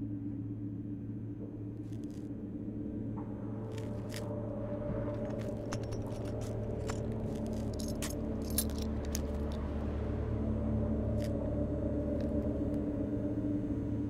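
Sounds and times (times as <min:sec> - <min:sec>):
low droning hum: 0:00.0 - 0:14.0
small jingles: 0:05.2 - 0:09.7.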